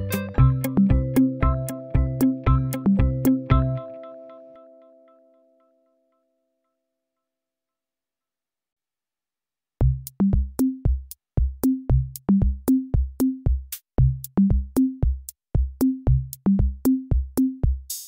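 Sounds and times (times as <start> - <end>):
electronic music with drum machine: 0.0 - 4.0, 9.8 - 18.0.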